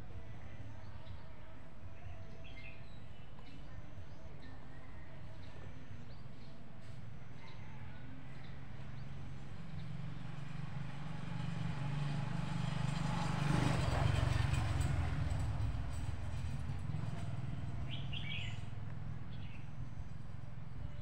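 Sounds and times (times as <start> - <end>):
passing vehicle engine hum: 6.8 - 21.0.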